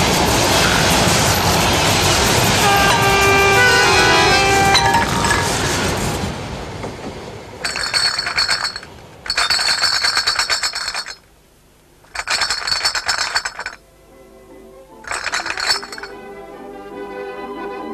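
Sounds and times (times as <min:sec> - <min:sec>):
glass bottles clinking: 0:04.0 - 0:05.6, 0:07.6 - 0:11.2, 0:12.1 - 0:13.8, 0:15.0 - 0:16.2.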